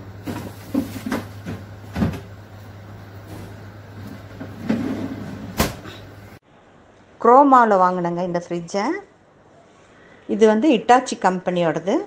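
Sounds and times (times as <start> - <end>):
steady low hum: 0.0 - 10.3
freezer drawer shutting thump: 5.4 - 6.0.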